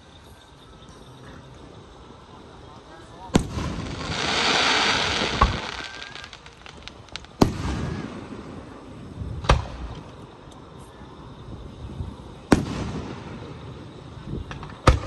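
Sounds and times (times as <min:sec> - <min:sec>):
firework shells booming: 0:03.3 - 0:10.2, 0:12.5 - 0:15.0
small firework cracks: 0:03.3 - 0:10.7, 0:12.5 - 0:15.0
crackle of firework sparks: 0:03.3 - 0:15.0.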